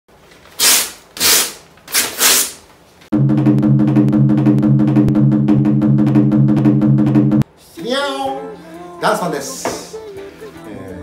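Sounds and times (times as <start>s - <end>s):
music with drum beat: 3.1s - 7.4s.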